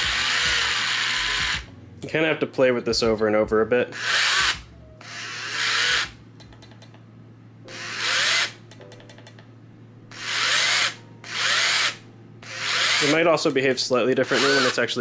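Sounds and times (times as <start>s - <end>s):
robot drive motors whining: 0.0s - 1.7s, 3.9s - 6.2s, 7.6s - 8.6s, 10.1s - 13.2s, 14.2s - 14.8s.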